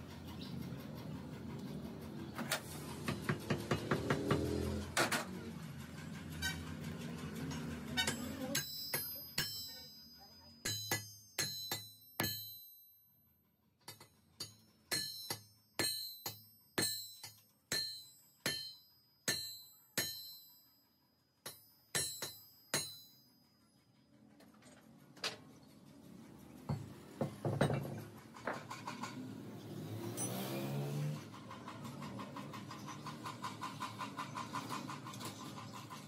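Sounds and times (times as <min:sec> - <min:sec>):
metal scraping on concrete: 0:00.7 - 0:09.9
metal crankshafts clinking: 0:04.4 - 0:12.8, 0:30.1 - 0:36.0.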